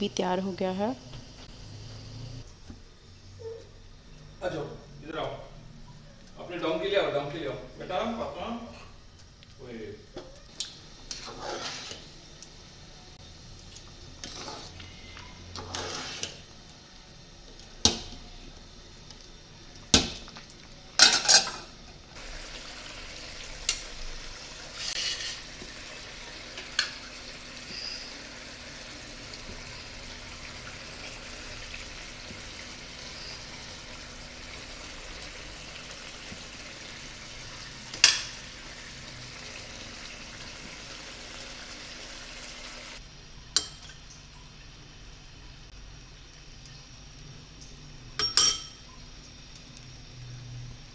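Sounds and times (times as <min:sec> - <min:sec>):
metal spoon clanking on pots: 0:21.0 - 0:21.7, 0:48.2 - 0:48.9.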